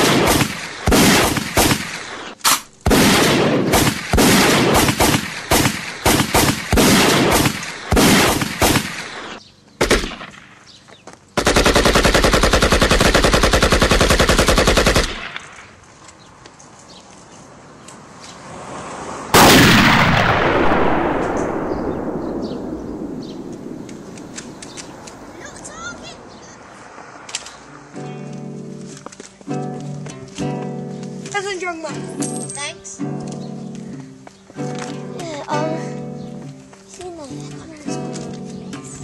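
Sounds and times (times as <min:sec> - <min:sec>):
rapid gunshots: 0:00.0 - 0:10.4, 0:11.4 - 0:15.6, 0:19.4 - 0:25.5
machine-gun fire: 0:00.0 - 0:10.5, 0:11.4 - 0:15.5, 0:19.4 - 0:25.3
loud bang: 0:19.4 - 0:25.6.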